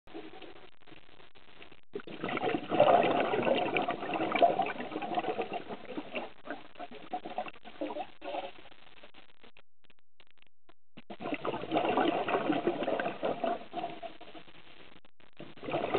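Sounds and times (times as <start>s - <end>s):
bubbles gurgling underwater: 2.0s - 8.5s, 11.1s - 14.2s, 15.4s - 15.9s.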